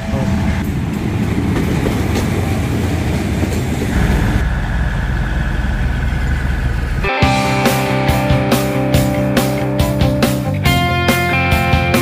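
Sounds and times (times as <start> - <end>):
steady high whine: 3.9 - 9.4
deep diesel rumble: 3.9 - 10.8.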